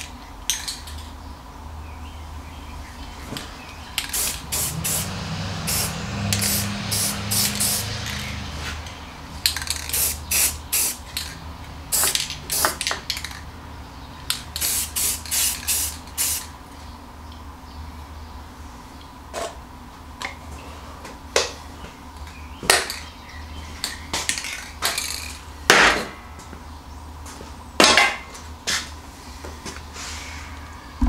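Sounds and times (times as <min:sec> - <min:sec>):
spray paint can hissing: 0:04.0 - 0:05.1, 0:05.7 - 0:08.3, 0:09.5 - 0:11.3, 0:11.9 - 0:12.9, 0:14.6 - 0:16.5.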